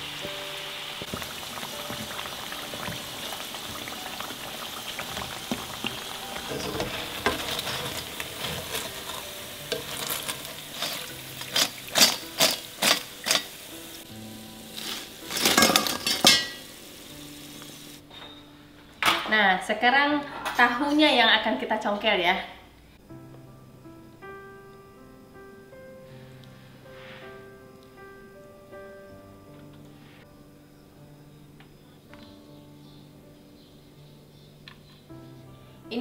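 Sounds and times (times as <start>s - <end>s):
food deep-frying in hot oil: 0.0s - 18.0s
soft background music: 0.0s - 36.0s
steel skimmer clacking: 4.9s - 13.6s, 14.8s - 16.6s
wooden spatula stirring in pan: 5.5s - 13.4s.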